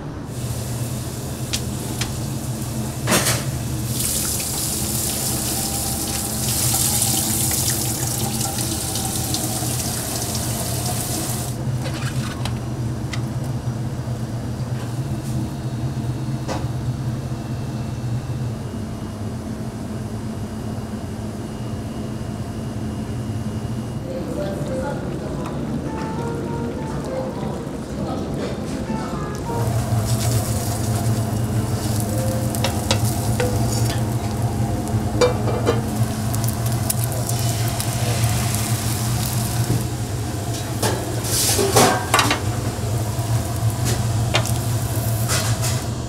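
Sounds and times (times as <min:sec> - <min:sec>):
steady low hum: 0:00.0 - 0:46.0
water running from a tap into sink: 0:03.8 - 0:11.6, 0:29.6 - 0:40.0.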